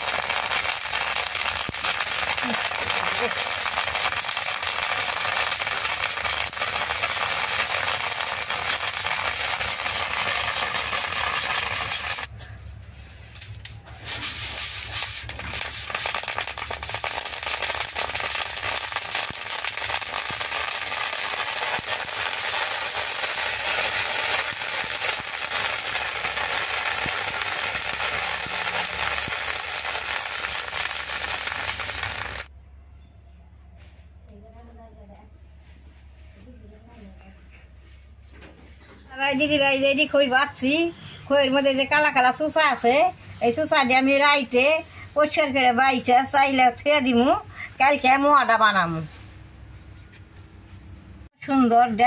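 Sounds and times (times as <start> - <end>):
seeds popping in a wok: 0.0 - 12.4, 14.8 - 32.5.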